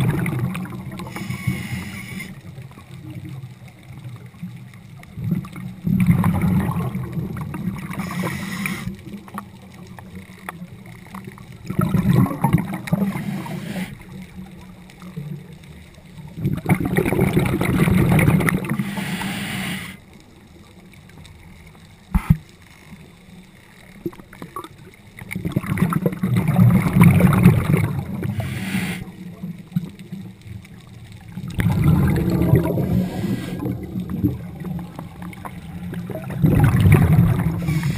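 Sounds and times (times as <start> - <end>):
underwater regulator bubbling: 0.0 - 2.4, 5.2 - 9.4, 11.7 - 14.0, 16.4 - 20.0, 25.3 - 29.9, 31.3 - 37.9.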